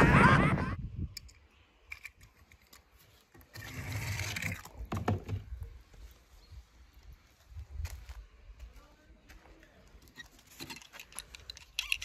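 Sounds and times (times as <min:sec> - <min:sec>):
toy cars clicking and tapping: 0:10.6 - 0:12.0.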